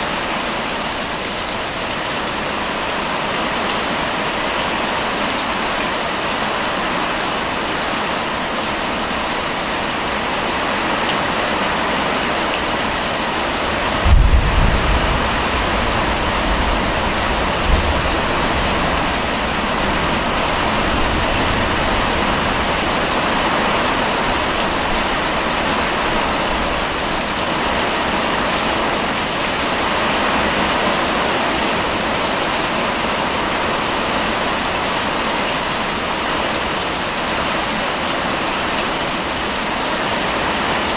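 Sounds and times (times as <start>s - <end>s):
heavy rain pouring: 0.0s - 40.9s
low rumble of thunder: 13.7s - 22.9s.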